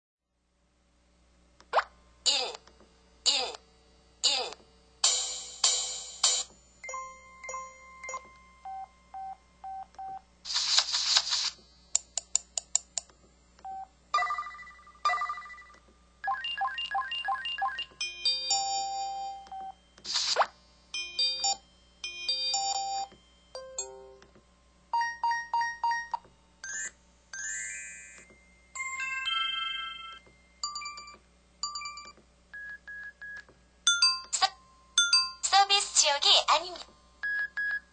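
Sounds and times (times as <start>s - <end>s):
phone alert tones: 6.8s - 10.2s, 13.7s - 19.8s, 21.0s - 24.2s, 24.9s - 35.4s
electronic beeps: 13.7s - 20.4s.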